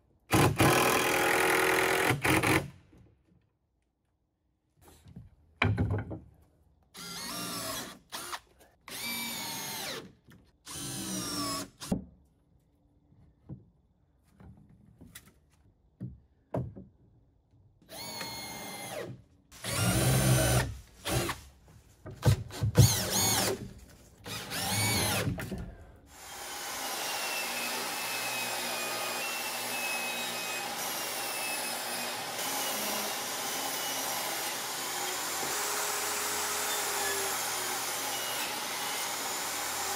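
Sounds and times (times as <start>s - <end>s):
cordless drill driving screws: 7.0s - 10.0s, 17.9s - 21.4s, 22.6s - 23.6s, 24.3s - 25.4s.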